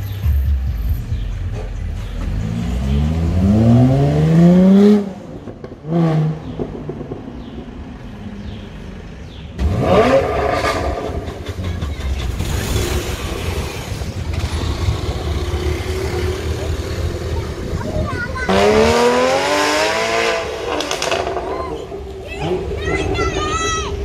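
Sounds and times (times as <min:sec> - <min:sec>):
sports car engine revving: 0:02.0 - 0:07.6, 0:09.6 - 0:11.6, 0:12.4 - 0:23.2
sports car engine accelerating: 0:02.0 - 0:07.7, 0:09.6 - 0:11.6, 0:12.5 - 0:23.2.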